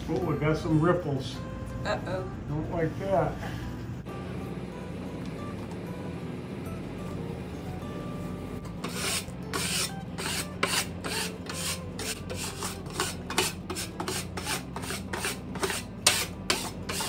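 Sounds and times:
putty knife scraping paper: 8.8s - 17.0s.

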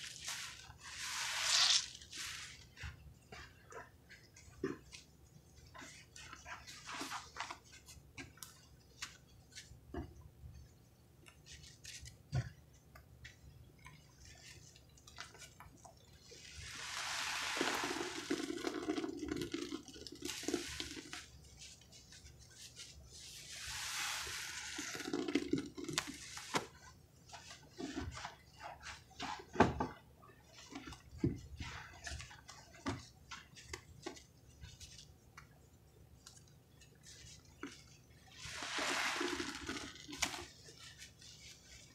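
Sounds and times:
wet sponges squelching: 0.0s - 10.1s, 13.2s - 41.9s
rush of liquid: 16.4s - 18.7s, 38.4s - 40.0s.

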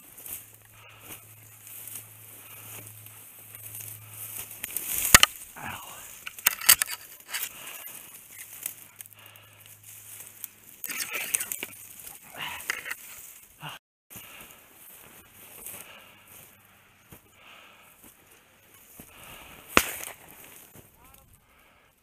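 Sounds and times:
twigs snapping: 2.7s - 13.4s, 19.7s - 21.2s
brush scraping against clothes: 10.8s - 13.2s.

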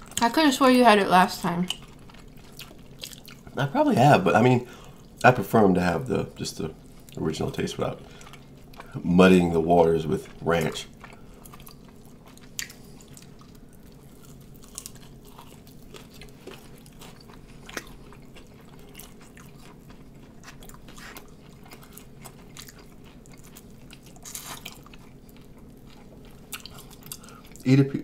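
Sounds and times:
faint steady hum: 0.0s - 28.0s
people biting and chewing: 1.7s - 3.6s, 10.2s - 27.7s.

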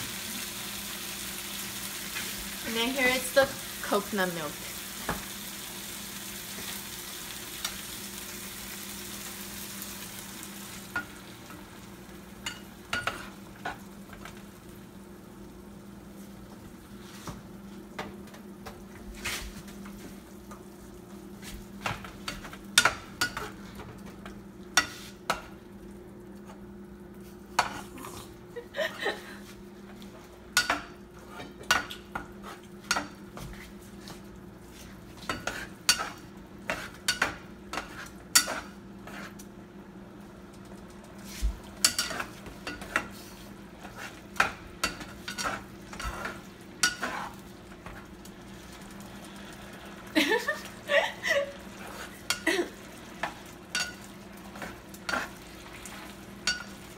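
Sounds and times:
spatula scraping frying pan: 24.8s - 25.2s, 34.8s - 39.4s, 41.3s - 48.1s, 51.6s - 52.4s, 53.0s - 56.9s.

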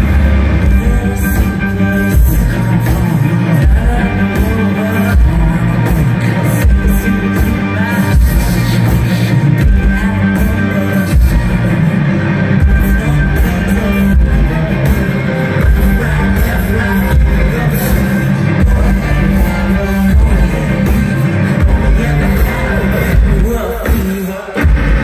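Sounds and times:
distorted electric guitar: 0.0s - 25.0s
heavy pulsing beat: 12.6s - 25.0s.

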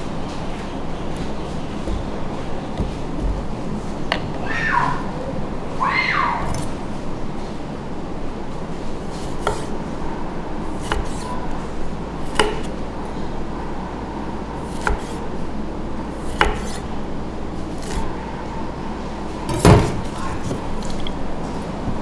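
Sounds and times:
steady background noise: 0.0s - 22.0s
knife striking chopping block: 12.3s - 12.7s, 16.3s - 16.8s.

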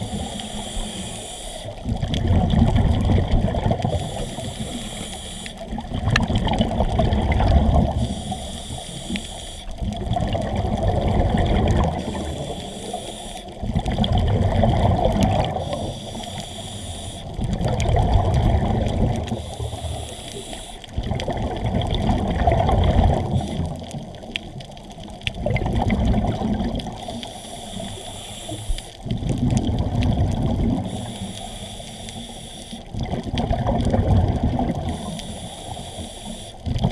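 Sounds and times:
hissing regulator inhale: 0.0s - 1.8s, 3.8s - 5.7s, 7.9s - 9.8s, 11.8s - 13.7s, 15.5s - 17.4s, 19.3s - 20.9s, 23.2s - 23.8s, 27.0s - 29.1s, 30.8s - 32.9s, 34.8s - 36.7s
bubbling exhale: 0.0s - 24.3s, 25.3s - 36.9s.

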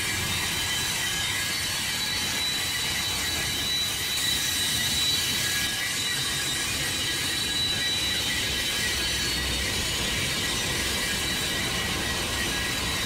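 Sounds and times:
train wheels squealing on track: 0.0s - 13.0s.

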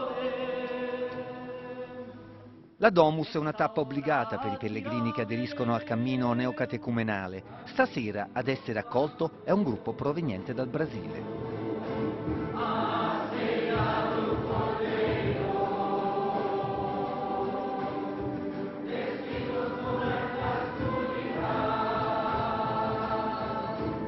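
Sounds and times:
congregation singing a hymn: 0.0s - 2.2s, 3.3s - 6.7s, 10.6s - 24.0s.

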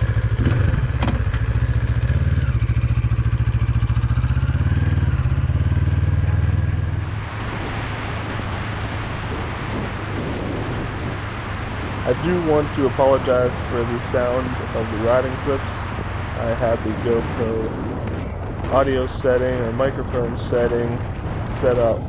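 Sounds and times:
motorcycle engine running: 0.0s - 22.0s
wind noise on microphone: 6.0s - 22.0s.

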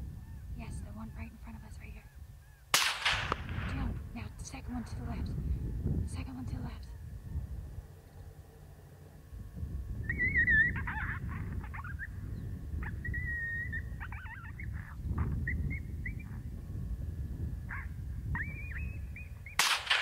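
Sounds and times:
wind rumble on microphone: 0.0s - 20.0s
rifle shot: 2.7s - 3.8s, 19.6s - 20.0s
coyote yips and howls: 10.0s - 16.5s, 17.6s - 19.7s.

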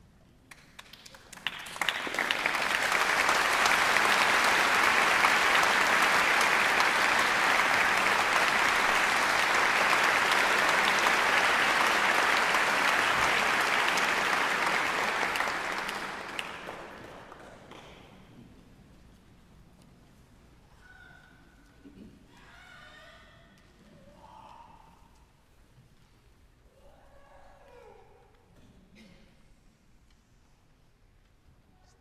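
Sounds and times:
audience applauding: 0.5s - 18.0s.

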